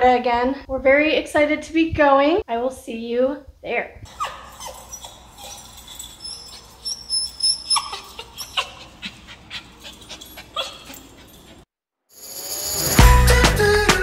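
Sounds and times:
puppy whimpering: 4.1s - 11.6s.

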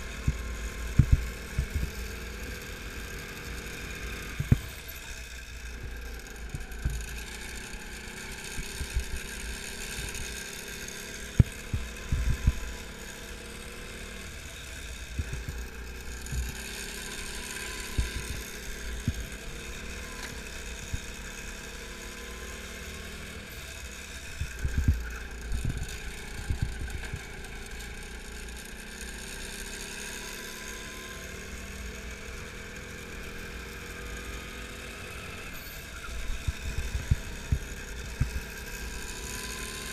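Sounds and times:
go-kart engine: 0.0s - 39.9s.

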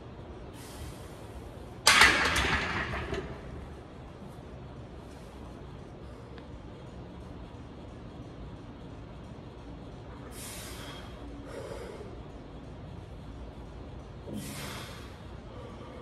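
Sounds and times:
low background hum: 0.0s - 16.0s
hard forceful breaths: 10.3s - 12.3s, 14.3s - 16.0s.

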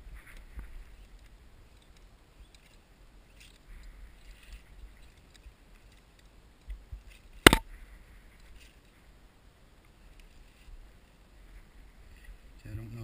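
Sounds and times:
sharp loud click: 7.4s - 7.7s.

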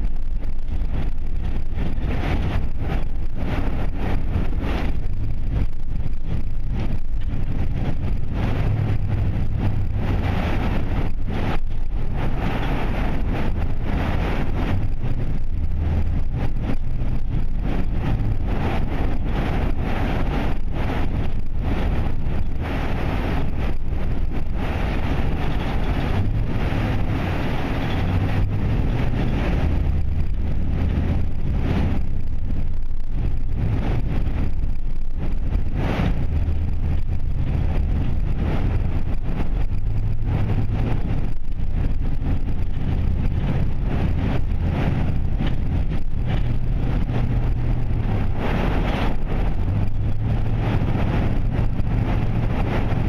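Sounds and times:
car engine and tyres rumbling: 0.0s - 53.0s.

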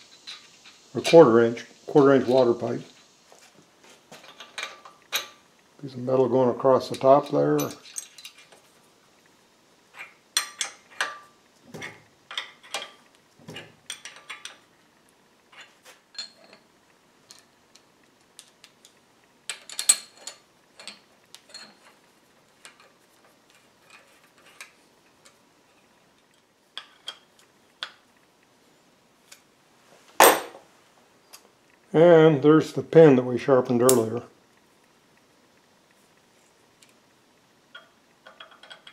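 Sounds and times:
wrench clicking on metal parts: 10.0s - 11.2s, 37.7s - 38.9s.

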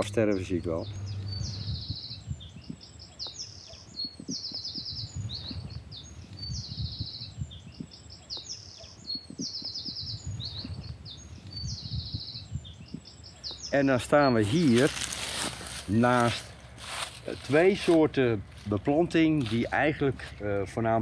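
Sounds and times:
songbirds trilling and chirping: 0.0s - 21.0s
low uneven rumble: 0.2s - 2.9s.

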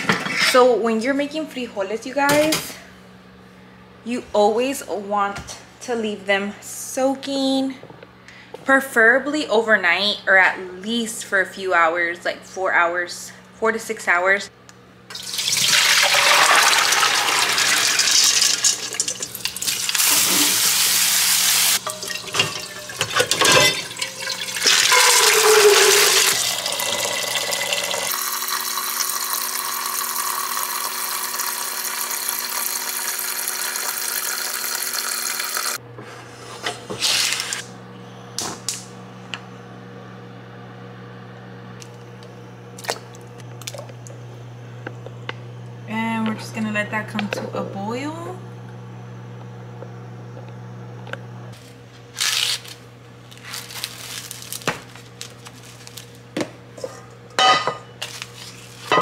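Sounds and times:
water pouring into metal colander: 15.1s - 20.0s, 21.8s - 35.8s.

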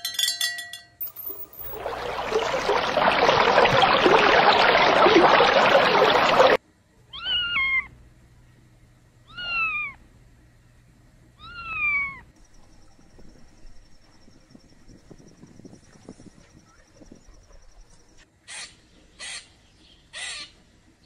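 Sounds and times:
cat meowing: 7.1s - 7.9s, 9.3s - 10.0s.

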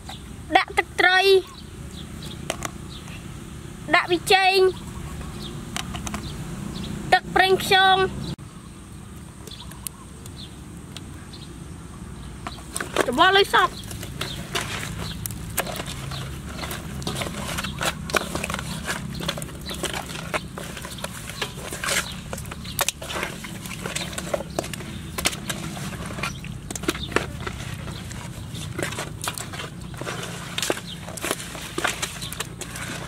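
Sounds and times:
wet squelches of fish: 13.7s - 33.0s.

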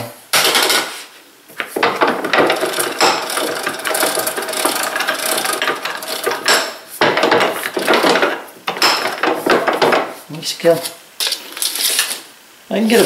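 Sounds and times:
vise screws rattling chatter: 1.6s - 10.1s.

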